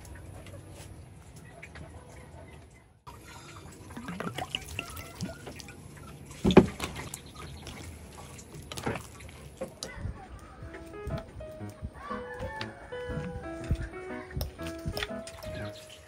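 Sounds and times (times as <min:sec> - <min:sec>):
wet squelching of mashing: 0:03.4 - 0:10.4.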